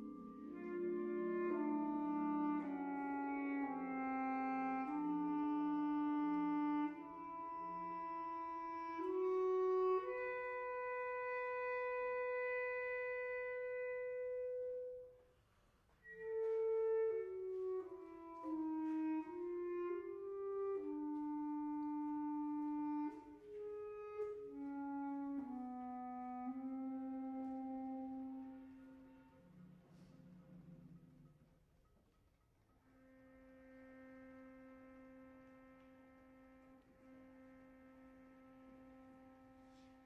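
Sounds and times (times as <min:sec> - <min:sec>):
chamber orchestra playing: 0:00.0 - 0:15.1, 0:16.0 - 0:29.5.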